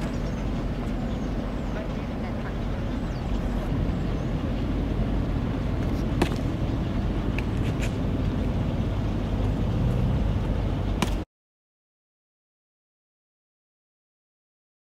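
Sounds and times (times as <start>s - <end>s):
low engine rumble: 0.0s - 11.3s.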